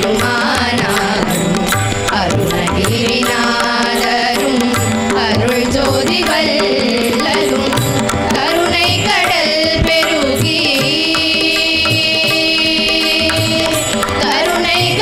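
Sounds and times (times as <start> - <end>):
girls singing devotional song: 0.0 - 15.0.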